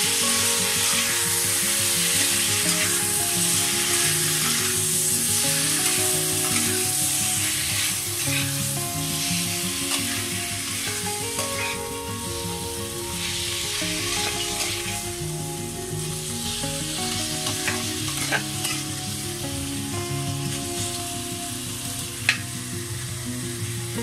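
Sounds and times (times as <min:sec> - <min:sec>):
background tune of held notes: 0:00.0 - 0:24.0
food sizzling in a wok: 0:00.0 - 0:24.0.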